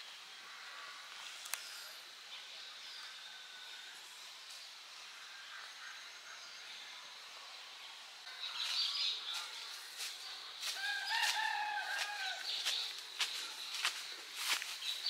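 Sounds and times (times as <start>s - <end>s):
dry leaves and twigs crackling: 8.3s - 15.0s.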